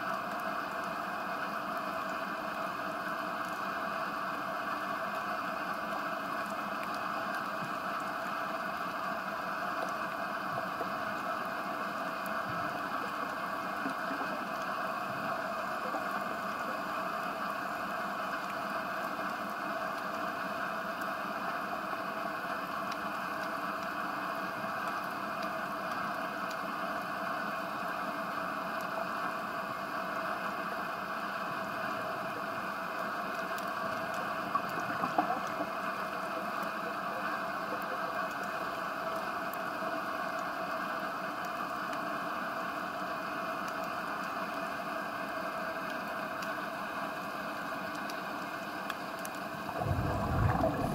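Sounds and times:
muffled underwater noise: 8.6 - 18.1, 31.3 - 39.4, 47.6 - 50.9.

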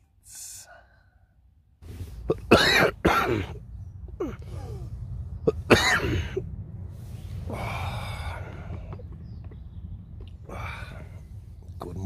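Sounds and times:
man coughing: 2.3 - 3.6, 5.5 - 6.4.

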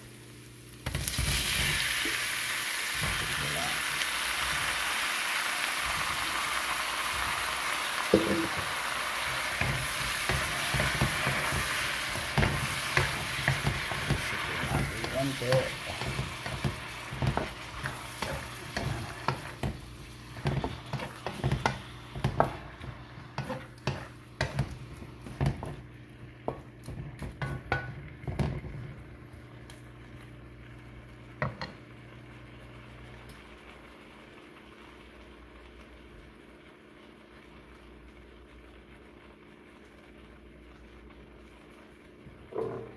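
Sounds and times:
shrimp sizzling in a wok: 0.0 - 25.9
wooden spatula scraping a wok: 8.4 - 25.8.

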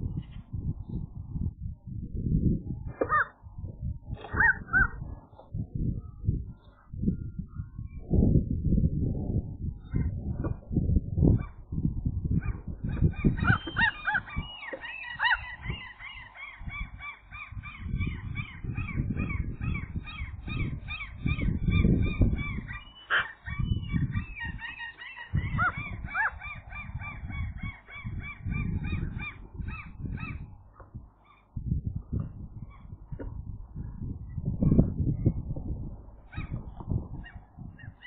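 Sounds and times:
low rumbling noise: 0.0 - 38.0
gulls calling: 2.9 - 6.9, 11.2 - 31.6, 36.1 - 38.0.

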